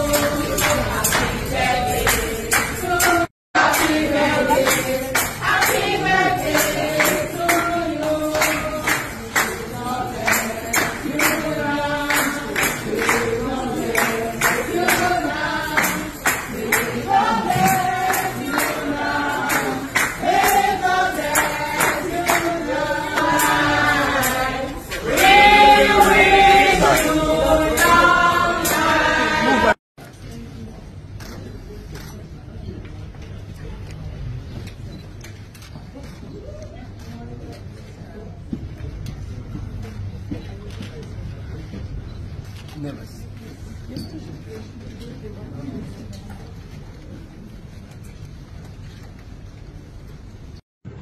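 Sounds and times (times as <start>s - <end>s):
choir singing: 0.0s - 29.8s
percussion beat: 0.0s - 29.8s.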